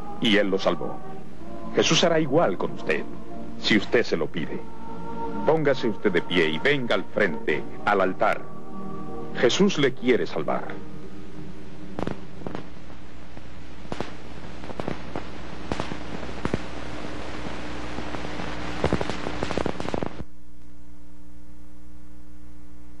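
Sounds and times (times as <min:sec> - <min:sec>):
film sound track hiss: 0:00.0 - 0:23.0
low steady hum: 0:00.0 - 0:23.0
crackles and pops: 0:11.7 - 0:23.0.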